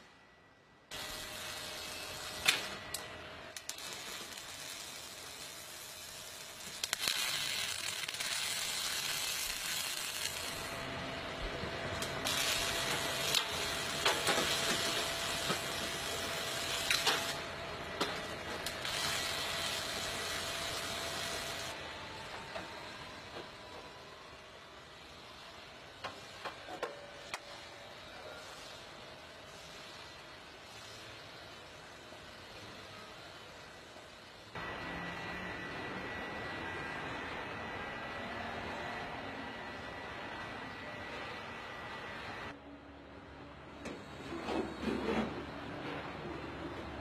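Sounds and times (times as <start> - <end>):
faint factory hum: 0.0 - 47.0
arc welding sizzling and crackling: 0.9 - 21.9, 24.9 - 42.6.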